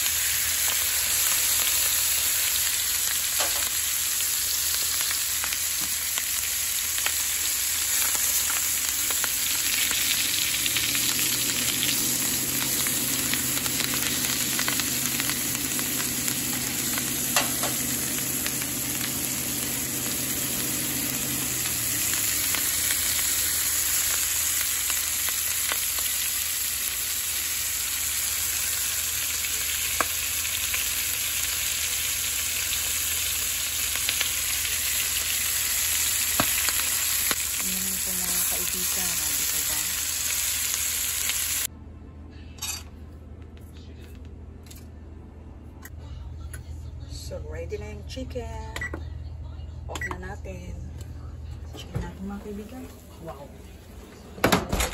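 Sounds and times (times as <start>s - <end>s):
chicken sizzling in a frying pan: 0.0s - 41.7s.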